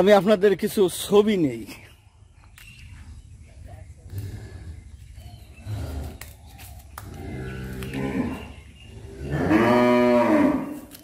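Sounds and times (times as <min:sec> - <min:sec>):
cows mooing: 0:07.1 - 0:10.9.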